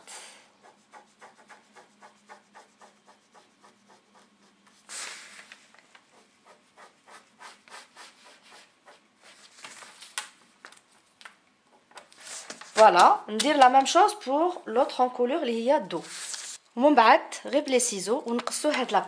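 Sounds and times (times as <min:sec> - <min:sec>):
ballpoint pen scratching on paper: 0:00.4 - 0:04.9, 0:05.8 - 0:09.4.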